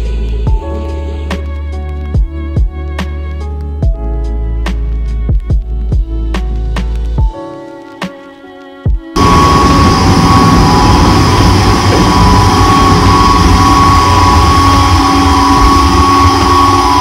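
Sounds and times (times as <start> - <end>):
ship machinery droning: 9.2 - 17.0
wind rumble on microphone: 9.2 - 17.0.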